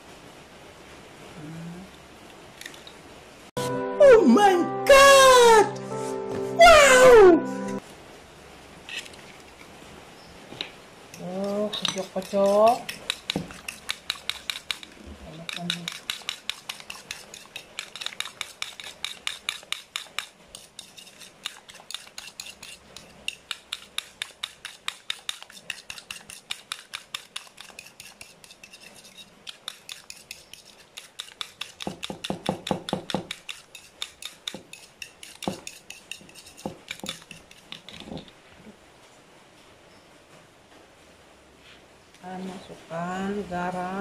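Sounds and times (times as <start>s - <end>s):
spoon clicking against bowl: 11.7s - 14.9s.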